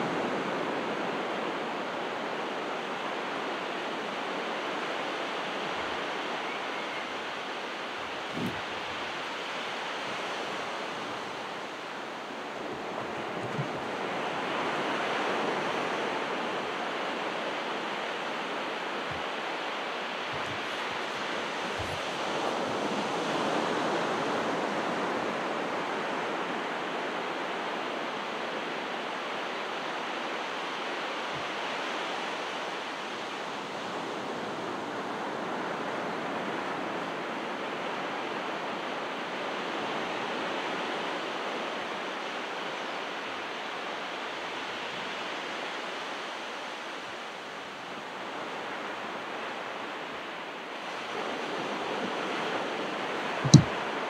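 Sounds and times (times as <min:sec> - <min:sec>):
ocean waves breaking on shore: 0:00.0 - 0:54.0.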